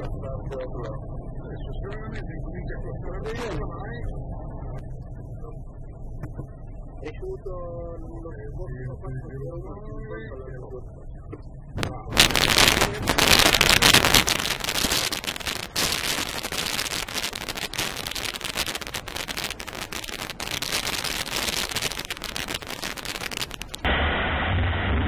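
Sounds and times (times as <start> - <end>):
rushing air: 12.1 - 24.5.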